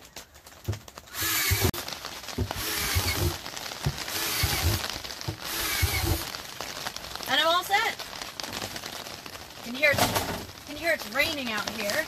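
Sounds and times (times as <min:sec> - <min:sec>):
cordless drill boring through plastic: 0:01.1 - 0:01.8, 0:02.4 - 0:06.3.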